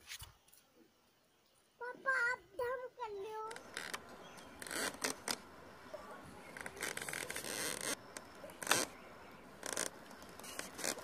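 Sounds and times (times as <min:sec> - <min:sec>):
rustling and scraping: 0:03.4 - 0:05.5, 0:06.3 - 0:09.0, 0:09.6 - 0:11.0.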